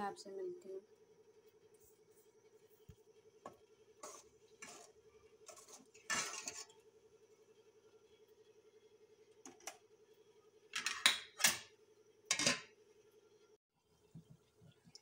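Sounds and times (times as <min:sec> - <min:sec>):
metal spoon scraping pot: 0:04.0 - 0:06.8.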